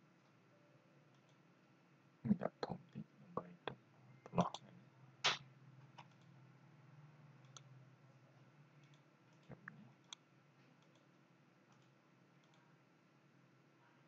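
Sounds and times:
faint low hum: 0.0 - 14.0
computer mouse clicks: 1.1 - 1.4, 6.0 - 6.3, 7.4 - 7.7, 8.8 - 10.2, 10.8 - 12.6.

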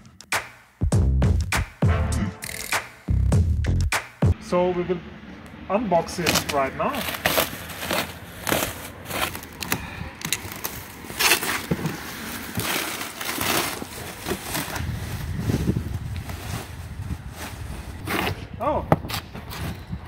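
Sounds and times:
plastic stretch wrap crinkling: 10.4 - 18.0.

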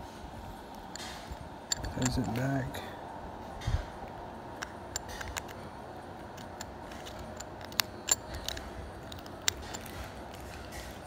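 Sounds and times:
small metallic clicks: 0.7 - 2.5, 4.6 - 5.6, 6.2 - 11.0.

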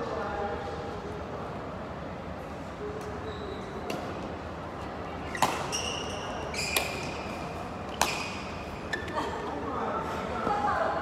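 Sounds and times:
shoes squeaking on court floor: 3.1 - 4.0, 5.2 - 9.2
rackets striking shuttlecock: 5.3 - 7.3, 7.9 - 8.6.

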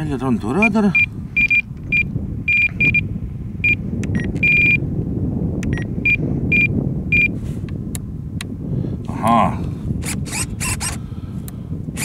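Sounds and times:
radio transmitter beeps: 0.6 - 3.0, 3.6 - 4.8.

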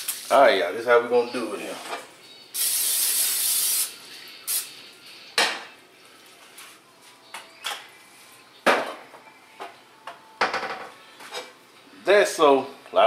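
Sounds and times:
aerosol spray hissing: 2.6 - 4.8.

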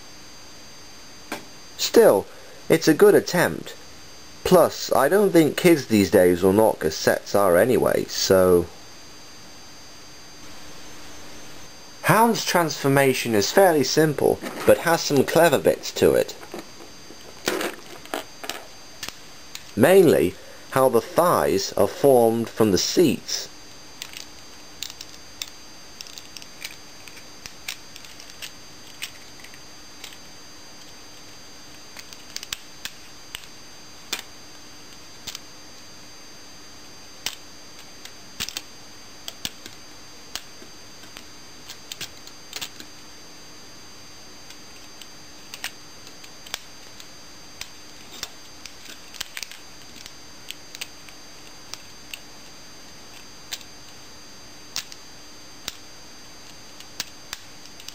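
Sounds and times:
faint steady hum: 0.0 - 57.9
plastic toy clicking and snapping: 38.4 - 38.6.

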